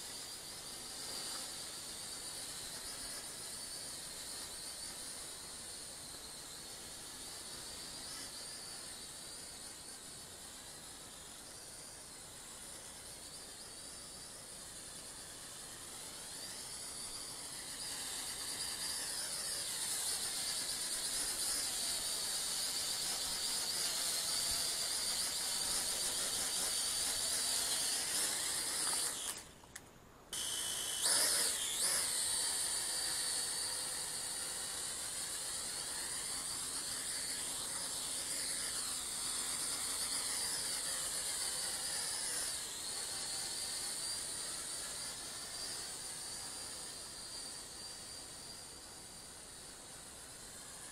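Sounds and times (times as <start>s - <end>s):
toy quadcopter motor whine: 0.0s - 29.7s, 30.3s - 50.9s.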